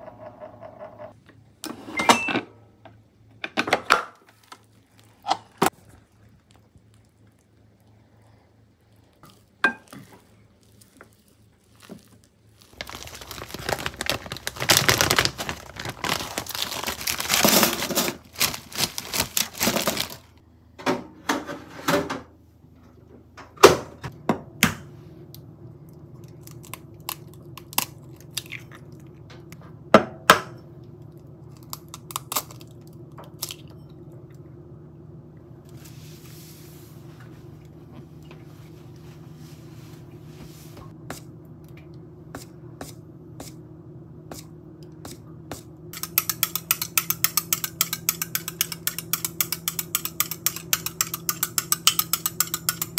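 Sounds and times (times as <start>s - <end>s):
wrapping crinkling: 10.2s - 20.4s
air fryer humming: 12.4s - 52.9s.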